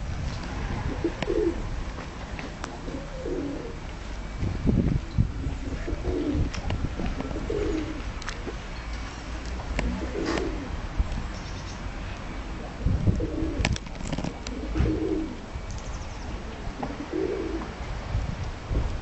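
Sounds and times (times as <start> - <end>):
pigeons cooing: 0.8 - 1.7, 2.7 - 3.8, 5.4 - 6.6, 7.2 - 8.1, 9.8 - 10.8, 13.1 - 15.4, 16.8 - 17.7.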